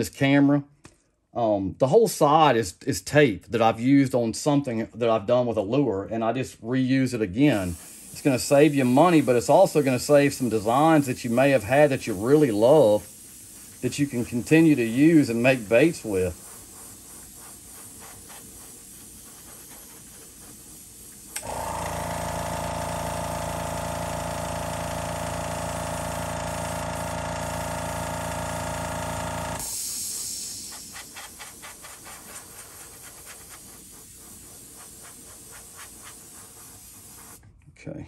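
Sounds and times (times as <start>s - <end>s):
air compressor motor hum: 7.4s - 37.4s
hiss of released air: 7.4s - 37.4s.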